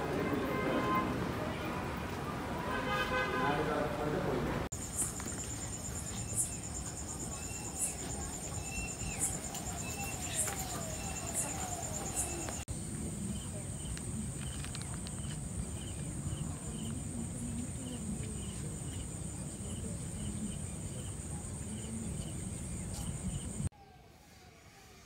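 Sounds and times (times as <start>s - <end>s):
insects trilling: 4.7s - 23.7s.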